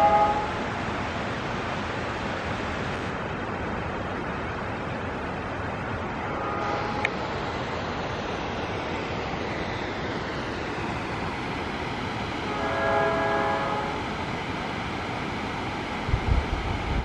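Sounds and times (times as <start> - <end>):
distant locomotive horn: 0.0 - 0.8, 6.1 - 7.3, 12.4 - 14.0
steady rushing noise: 0.0 - 17.0.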